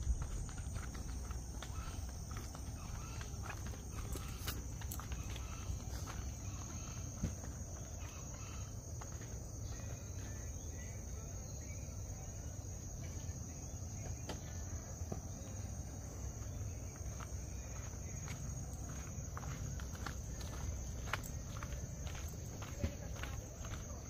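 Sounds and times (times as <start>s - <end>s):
low rumble: 0.0s - 1.5s
insects droning: 0.0s - 24.0s.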